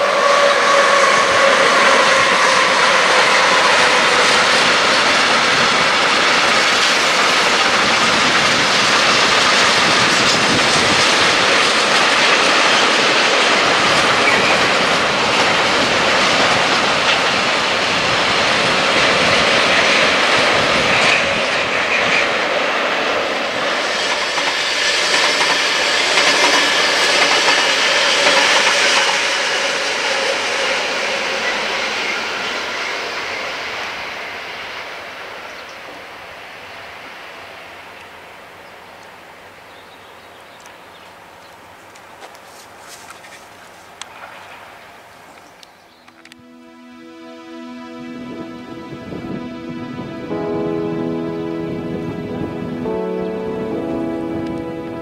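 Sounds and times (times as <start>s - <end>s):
train wheels clattering on rails: 0.0s - 34.5s
locomotive whine: 0.0s - 42.9s, 43.9s - 55.0s.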